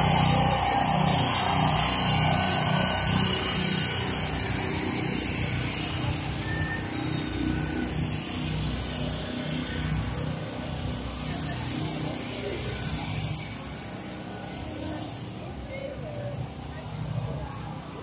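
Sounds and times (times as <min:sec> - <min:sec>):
crowd murmuring: 0:00.0 - 0:09.4, 0:10.4 - 0:18.0
small engine running: 0:00.0 - 0:18.0.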